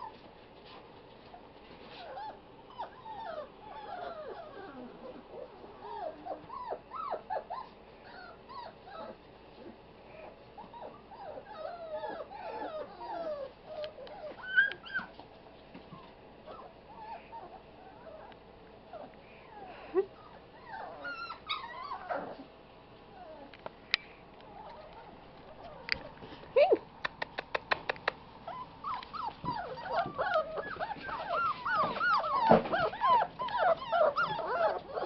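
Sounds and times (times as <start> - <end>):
puppies whimpering and yipping: 1.8 - 15.2, 15.9 - 22.5, 28.4 - 35.0.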